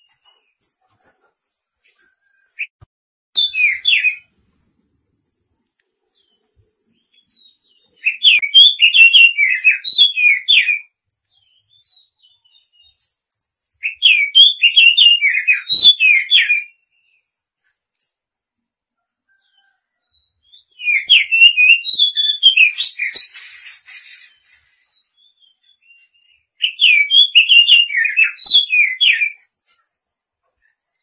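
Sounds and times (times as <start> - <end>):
bird singing whistled notes: 3.4 - 4.3, 7.0 - 13.0, 13.8 - 17.2, 19.5 - 29.5.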